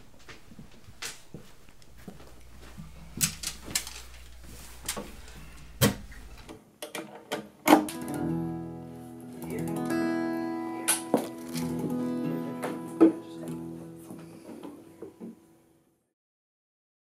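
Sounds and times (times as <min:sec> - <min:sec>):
guitars being handled clicks: 0:03.2 - 0:05.1, 0:06.8 - 0:08.3, 0:10.8 - 0:15.2
acoustic guitars strumming: 0:07.8 - 0:15.5.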